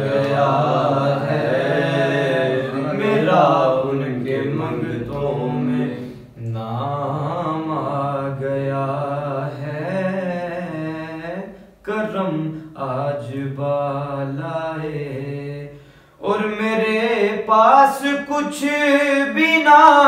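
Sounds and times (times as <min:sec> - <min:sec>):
man singing slow melody: 0:06.0 - 0:20.0.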